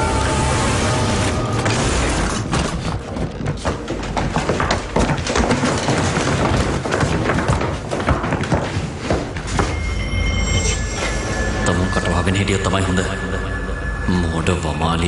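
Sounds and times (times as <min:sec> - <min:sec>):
rapid clatter of knocks and thumps: 0:02.5 - 0:09.8.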